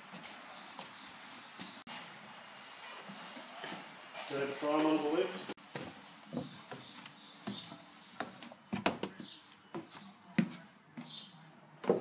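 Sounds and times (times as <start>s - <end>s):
footsteps on wooden stairs: 0.0s - 2.1s, 4.8s - 12.0s.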